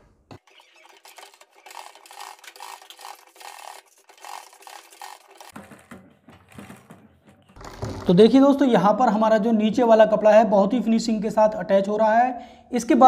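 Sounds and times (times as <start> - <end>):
sewing machine stitching: 0.4 - 8.3.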